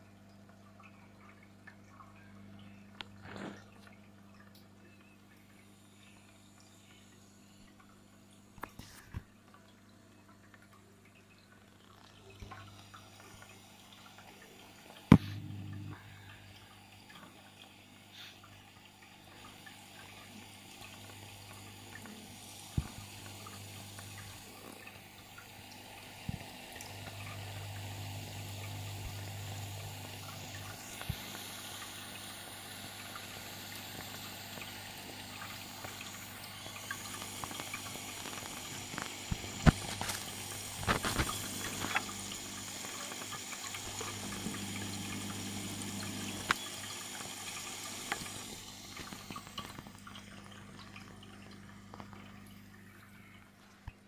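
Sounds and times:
pump humming: 0:10.5 - 0:54.0
rushing bubbling water: 0:18.2 - 0:53.8.

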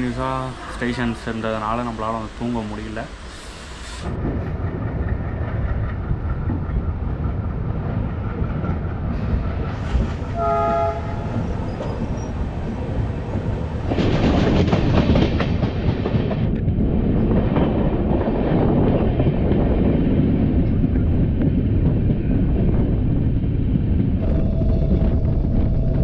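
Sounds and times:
train running noise: 0:00.0 - 0:26.0
train horn: 0:10.3 - 0:11.8.

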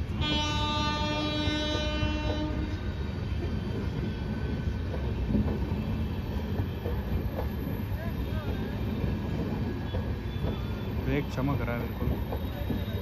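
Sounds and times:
train wheels rumbling on rails: 0:00.0 - 0:13.0
train horn long note: 0:00.1 - 0:02.9.

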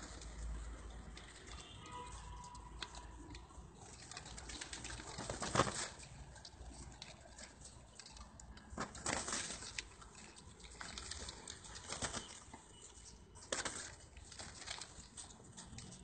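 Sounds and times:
pigeons flapping wings: 0:03.8 - 0:07.5, 0:08.1 - 0:12.6, 0:13.4 - 0:15.3.

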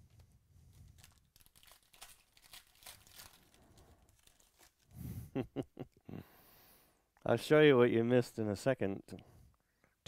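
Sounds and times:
foil wrapper crinkling and tearing: 0:00.7 - 0:05.0.

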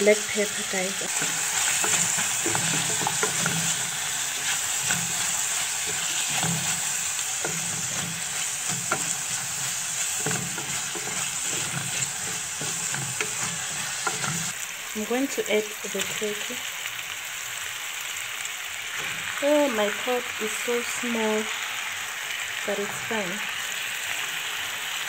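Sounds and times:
vegetables sizzling in hot oil: 0:00.0 - 0:25.0
wooden spoon scraping a pot: 0:01.1 - 0:14.6.

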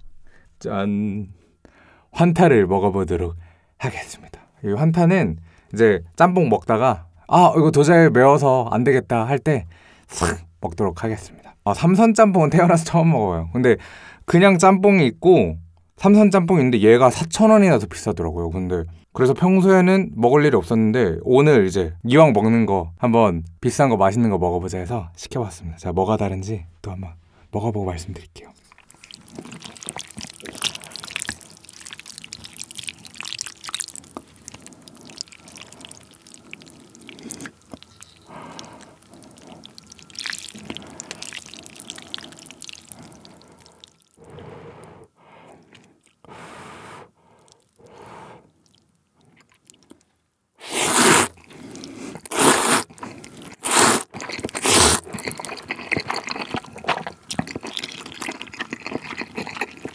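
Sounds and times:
chewing: 0:28.4 - 0:46.3, 0:47.2 - 0:50.2, 0:50.9 - 0:59.9
dripping: 0:28.6 - 0:44.2
loud noodle slurps: 0:28.8 - 0:44.9, 0:50.6 - 0:59.9
noodles stirred in soup: 0:50.6 - 0:59.9.

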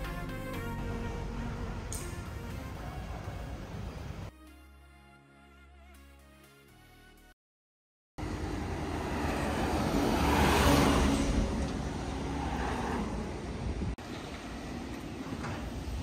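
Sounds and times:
low traffic rumble: 0:00.0 - 0:04.3, 0:08.2 - 0:16.0
vehicle passing close by: 0:08.2 - 0:14.0.

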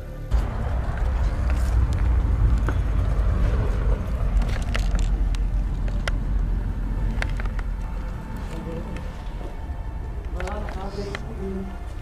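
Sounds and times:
low rumble of wind: 0:00.2 - 0:12.0
footsteps on tiled floor: 0:00.3 - 0:05.9.

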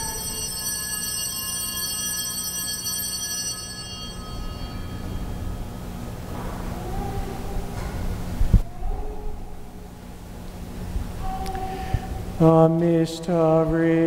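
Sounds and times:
altar bell ringing: 0:00.0 - 0:06.3
steady low hum: 0:00.0 - 0:14.0.

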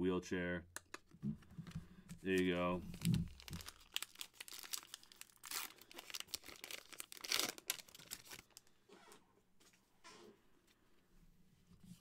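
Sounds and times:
wrapper tearing and crinkling: 0:02.4 - 0:08.6.

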